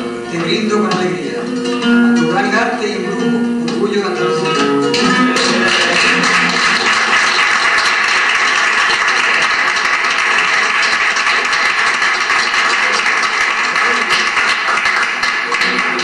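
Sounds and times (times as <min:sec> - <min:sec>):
people applauding: 0:05.0 - 0:16.0.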